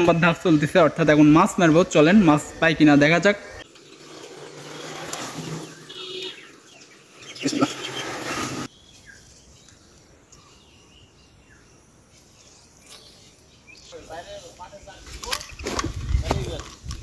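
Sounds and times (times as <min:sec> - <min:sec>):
faint outdoor ambience: 0:00.0 - 0:17.0.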